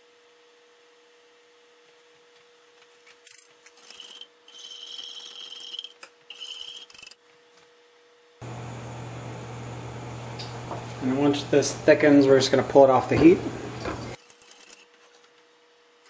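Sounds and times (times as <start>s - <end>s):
wire whisk scraping a saucepan: 3.8s - 7.2s
steady hum: 8.4s - 14.2s.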